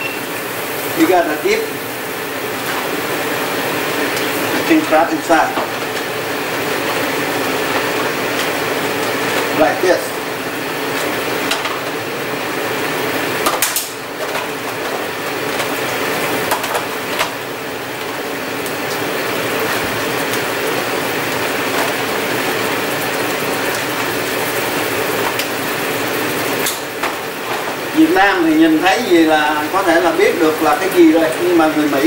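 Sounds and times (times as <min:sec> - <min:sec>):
crab legs sizzling in butter: 0:00.0 - 0:32.0.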